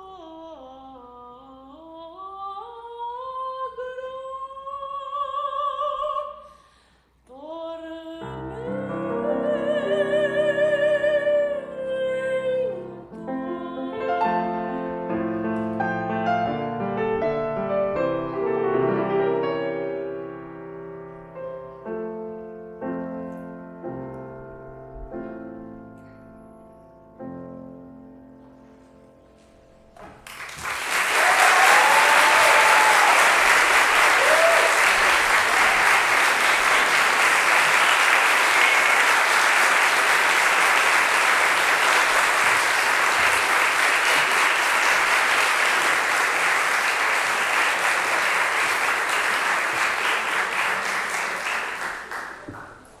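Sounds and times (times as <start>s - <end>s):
audience applauding: 30.2s - 53.0s.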